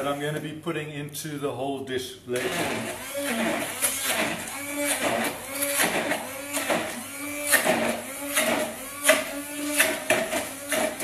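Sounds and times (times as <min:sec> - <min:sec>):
stick blender whining and grinding: 0:02.3 - 0:11.0.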